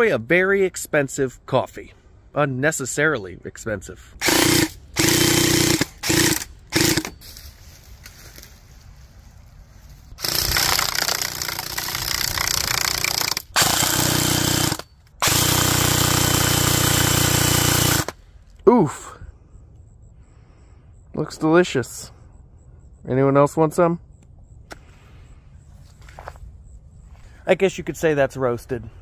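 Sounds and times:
airsoft guns firing bursts: 4.2 - 7.1, 10.2 - 18.2.

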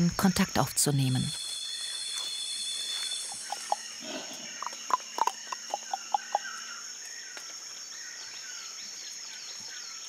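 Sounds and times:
person tongue clicking: 4.6 - 6.4.

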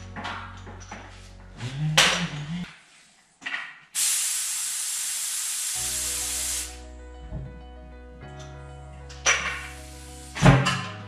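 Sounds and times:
steady low hum: 0.0 - 2.7
compressed air blast hissing: 4.0 - 6.9, 9.4 - 10.9.

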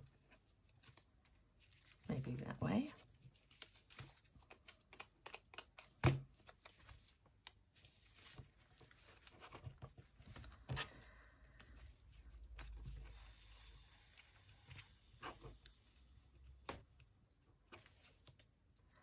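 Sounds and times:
paper rustling: 0.0 - 16.0.

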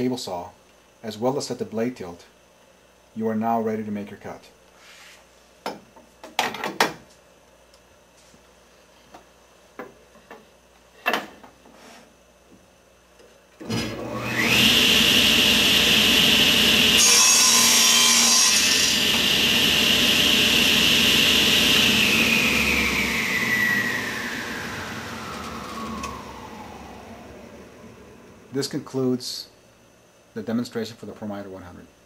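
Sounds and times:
table saw whine: 13.6 - 28.9
saw cutting wooden board: 13.7 - 26.8.

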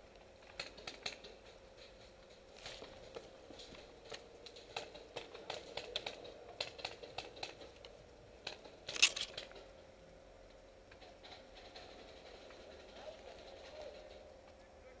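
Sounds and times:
leaves and twigs crackling: 8.8 - 9.6.

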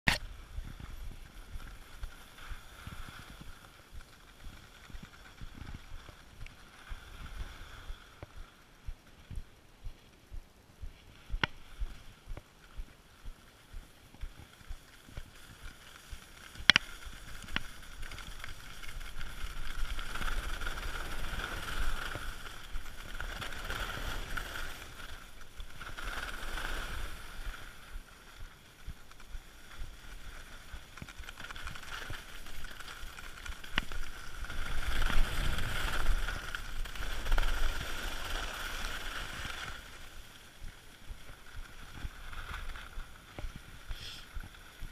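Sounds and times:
skis scraping on packed snow: 0.2 - 44.9
light ticks: 3.0 - 19.0.

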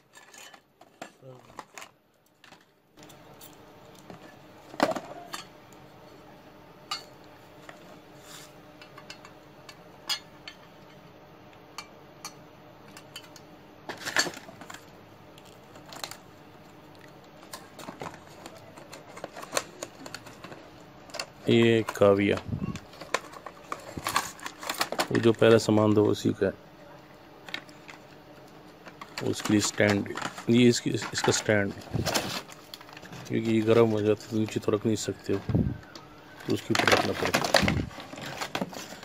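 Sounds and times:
metal and plastic items clattering: 0.0 - 5.5, 12.9 - 16.2, 17.3 - 26.3, 28.8 - 39.0
faint steady hum: 0.0 - 39.0.

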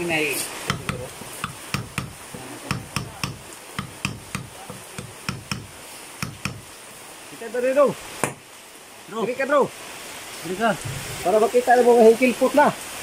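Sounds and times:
hammer tapping a metal punch: 0.7 - 6.7.

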